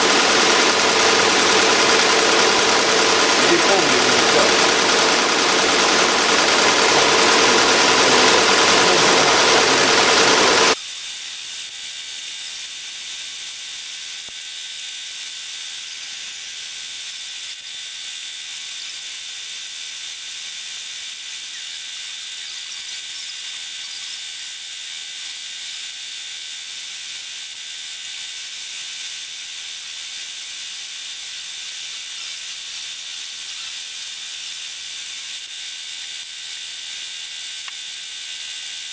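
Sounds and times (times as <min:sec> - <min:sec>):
embroidery machine stitching: 0:00.0 - 0:10.8.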